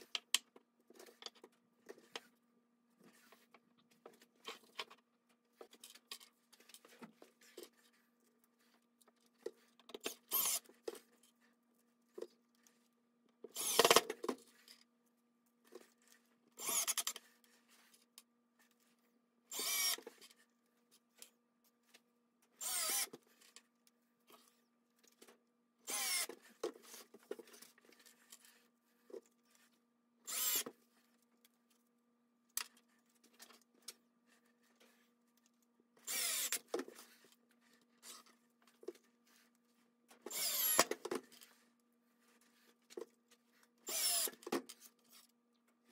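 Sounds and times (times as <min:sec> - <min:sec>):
cordless driver driving screws: 0:10.1 - 0:10.7, 0:13.5 - 0:14.1, 0:19.5 - 0:20.1, 0:22.6 - 0:23.2, 0:25.9 - 0:26.4, 0:30.3 - 0:30.7, 0:36.0 - 0:36.7, 0:40.3 - 0:41.1, 0:43.9 - 0:44.5.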